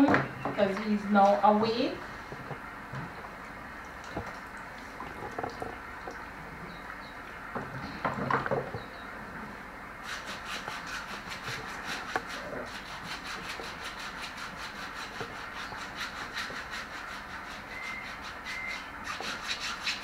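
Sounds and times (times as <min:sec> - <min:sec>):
foot file rasping on skin: 0:10.0 - 0:20.0.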